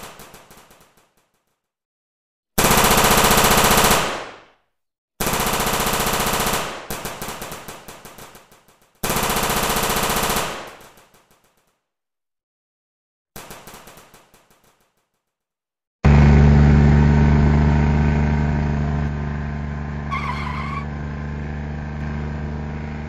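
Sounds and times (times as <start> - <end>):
machine-gun fire bursts: 0.0 - 1.2, 2.6 - 4.5, 5.2 - 11.6, 13.4 - 14.8.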